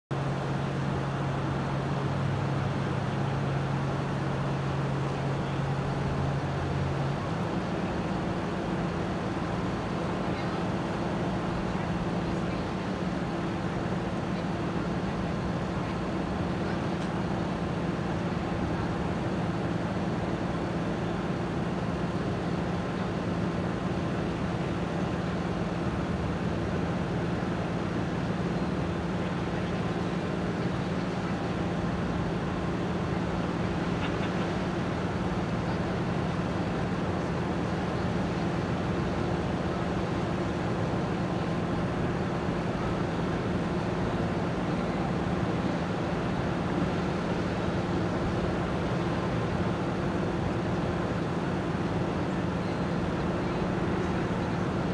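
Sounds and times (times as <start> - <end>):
ship engine drone: 0.1 - 54.9.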